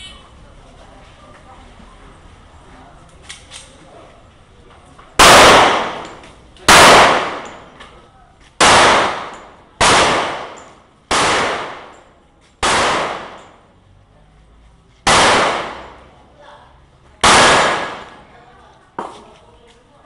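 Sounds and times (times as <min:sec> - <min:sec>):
pistol shots with echo: 0:05.2 - 0:07.8, 0:08.6 - 0:12.0, 0:12.6 - 0:13.6, 0:15.1 - 0:16.1, 0:17.2 - 0:18.2.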